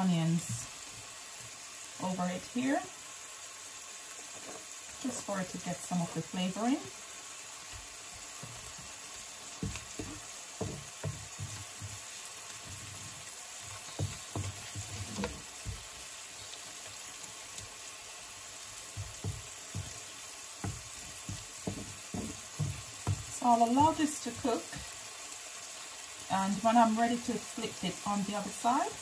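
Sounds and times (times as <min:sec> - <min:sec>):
steak sizzling in pan: 0:00.0 - 0:29.0
wooden spatula scraping pan: 0:07.7 - 0:16.6, 0:18.9 - 0:24.9.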